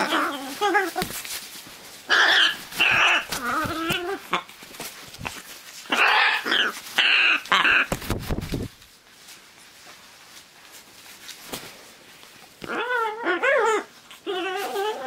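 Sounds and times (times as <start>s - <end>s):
macaw giving harsh calls: 2.1s - 3.5s, 5.9s - 8.0s.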